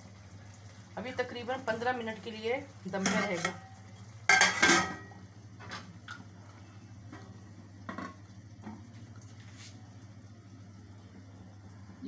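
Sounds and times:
low steady hum: 0:00.0 - 0:12.0
metal lid clattering onto pot: 0:04.3 - 0:05.1.

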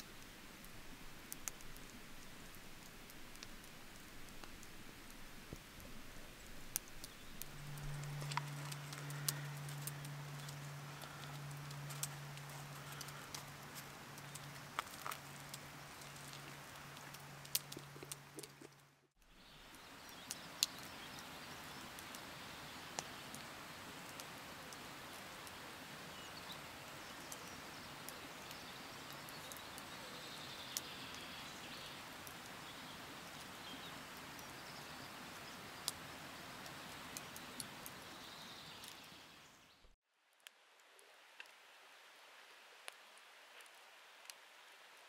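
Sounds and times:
faint clicks: 0:00.0 - 0:18.8
soft steady hiss: 0:00.0 - 0:45.0.

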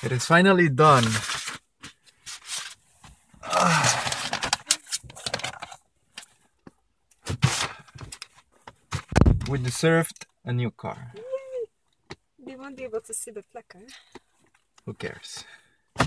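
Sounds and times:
rustling and scraping handling noise: 0:00.0 - 0:09.7.

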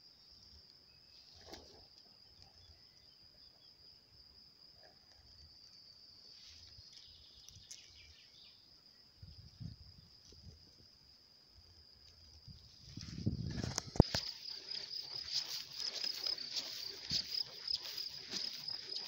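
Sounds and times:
crickets chirring: 0:00.0 - 0:19.0
wind rumble on microphone: 0:09.2 - 0:10.8, 0:12.4 - 0:14.1.

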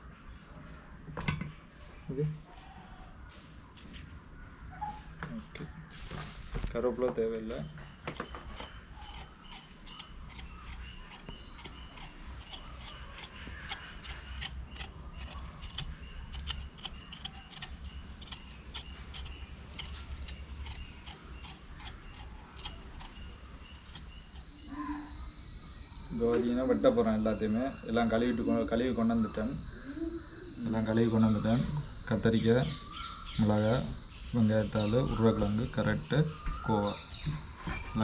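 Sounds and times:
knife scraping potato skin: 0:07.6 - 0:25.1.

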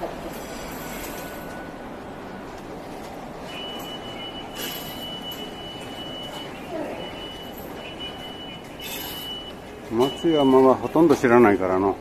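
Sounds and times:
station concourse ambience: 0:00.0 - 0:12.0.

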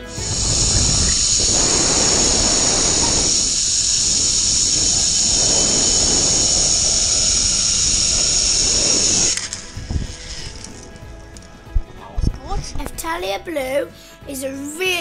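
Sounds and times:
rushing noise: 0:00.0 - 0:10.9
zip-line trolley whine: 0:00.0 - 0:11.0.

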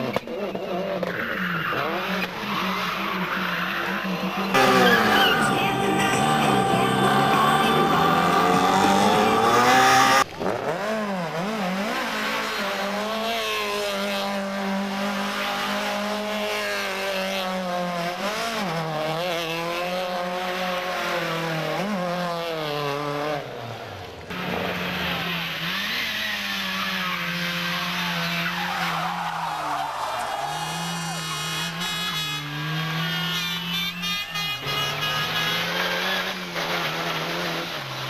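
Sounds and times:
car engine revving: 0:00.1 - 0:23.6, 0:24.3 - 0:38.0
car engine running steadily: 0:04.2 - 0:10.4
music: 0:04.6 - 0:09.8
tyres squealing: 0:04.6 - 0:10.2.

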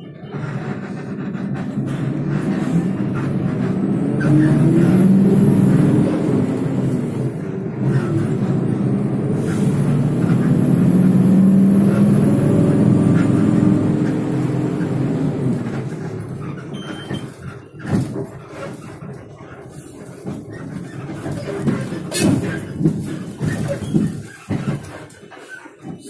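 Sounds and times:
bus engine drone: 0:00.0 - 0:26.0
road noise: 0:00.0 - 0:26.0.

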